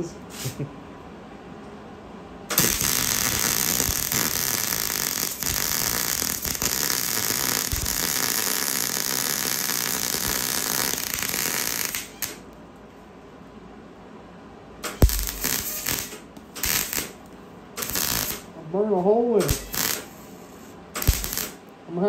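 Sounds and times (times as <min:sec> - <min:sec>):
welding arc crackling: 0:02.5 - 0:12.4, 0:14.8 - 0:18.5, 0:19.4 - 0:21.7.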